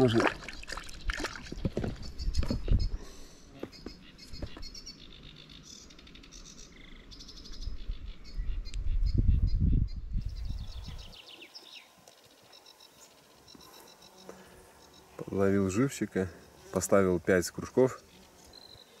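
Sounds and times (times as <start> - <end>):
small birds chirping: 0.0 - 19.0.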